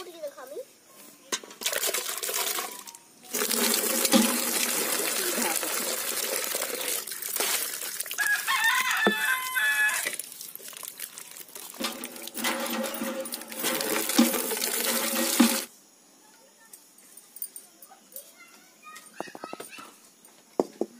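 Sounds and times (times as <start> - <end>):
water splashing in a pot: 1.4 - 15.7
chicken calls: 8.2 - 10.2
rooster crowing: 8.2 - 10.2.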